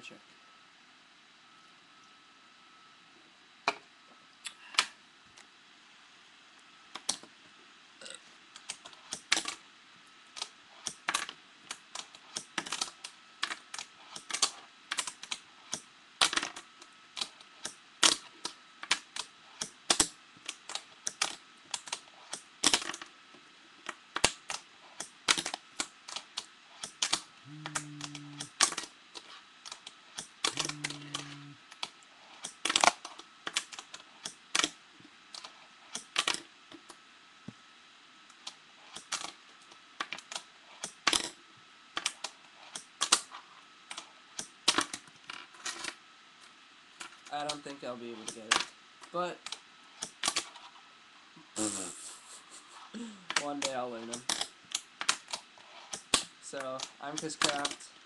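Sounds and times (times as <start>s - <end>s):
short low hums: 27.4s - 28.5s, 30.4s - 31.6s.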